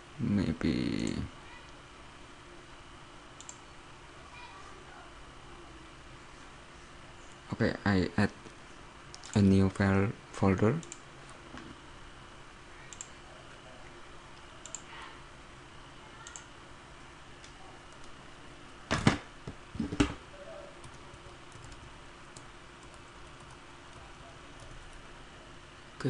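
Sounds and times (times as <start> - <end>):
mouse clicks: 3.4 - 3.6, 16.2 - 16.5
keyboard typing: 16.2 - 16.5, 20.8 - 25.0.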